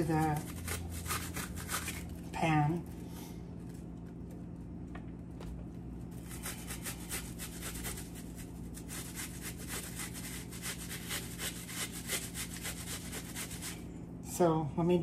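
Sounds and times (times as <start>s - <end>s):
onion grated on metal grater: 0.0s - 2.3s, 6.2s - 13.8s.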